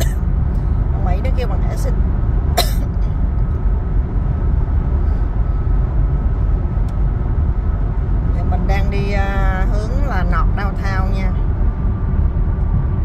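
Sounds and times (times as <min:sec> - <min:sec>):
road and tyre noise in car: 0:00.0 - 0:13.0.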